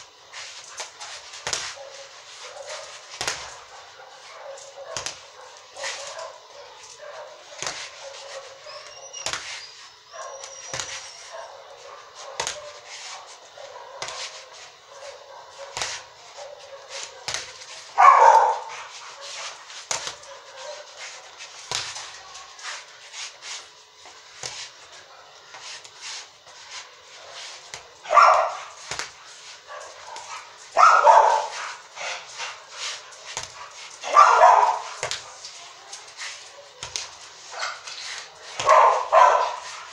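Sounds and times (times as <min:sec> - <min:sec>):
boxing gloves hitting reflex ball: 0:28.8 - 0:29.2.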